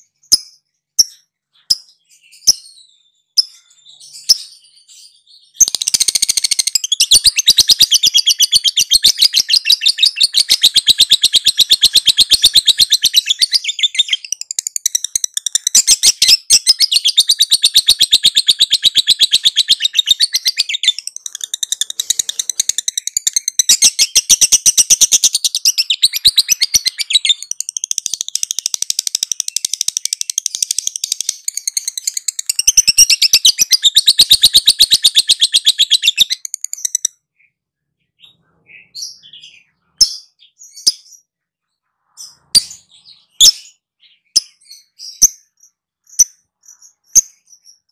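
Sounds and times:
lovebird chattering trill: 5.6 - 37.2.

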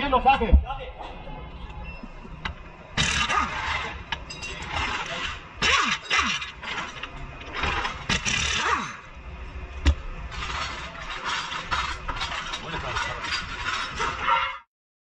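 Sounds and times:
dense mechanical rattle: 2.0 - 14.7
pneumatic impact wrench bursts: 3.0 - 9.2, 10.3 - 14.5.

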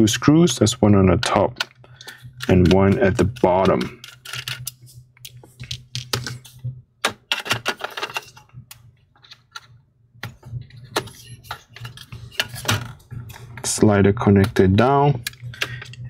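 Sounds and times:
plastic fan being handled: 2.4 - 4.8.

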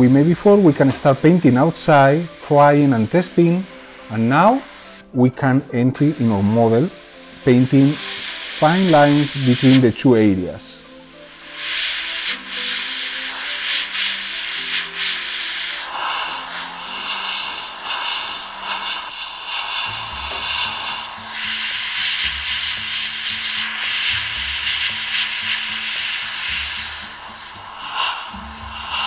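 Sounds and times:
airbrush compressed-air hiss: 0.0 - 5.2, 5.9 - 29.0
faint background music: 0.0 - 29.0.

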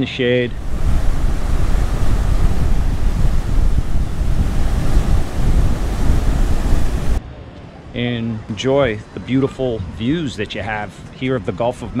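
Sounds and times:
wind buffeting microphone: 0.4 - 7.2
surf breaking on beach: 0.5 - 7.2.

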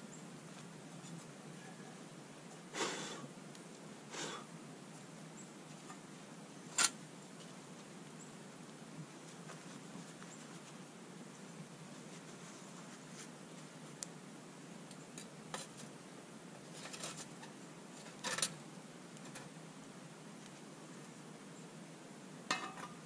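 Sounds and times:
metal grill grate clicking and scraping: 6.7 - 7.0, 16.7 - 18.6, 22.5 - 23.0.

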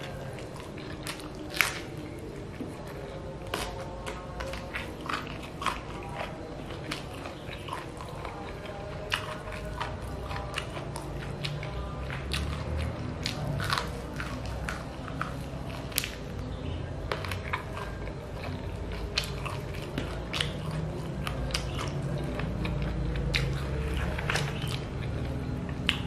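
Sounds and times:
chewing crunchy chicken feet: 0.0 - 26.0.

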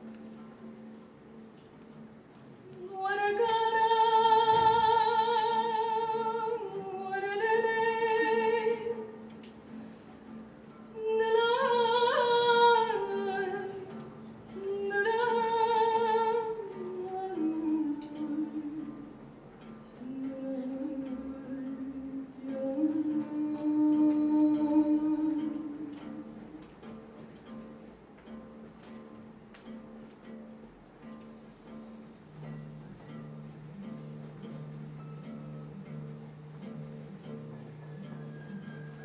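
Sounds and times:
woman singing: 2.6 - 9.4, 10.8 - 19.2, 20.0 - 26.6.

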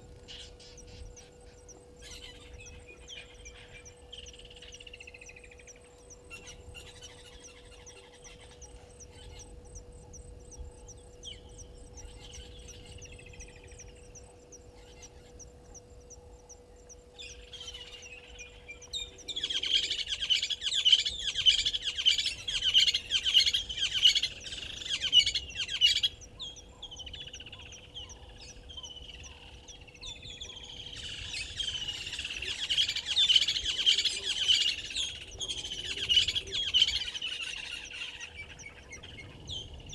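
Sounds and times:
birds chirping and chattering: 0.0 - 39.9.

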